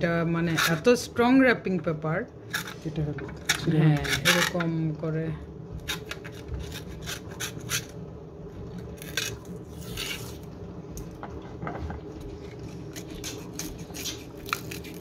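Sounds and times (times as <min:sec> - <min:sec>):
foil seal crinkling and tearing: 0:12.7 - 0:15.0.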